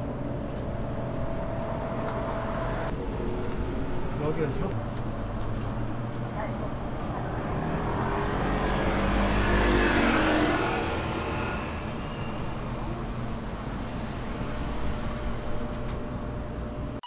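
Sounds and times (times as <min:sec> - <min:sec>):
low traffic rumble: 0:00.0 - 0:16.8
vehicle passing by: 0:07.2 - 0:12.0.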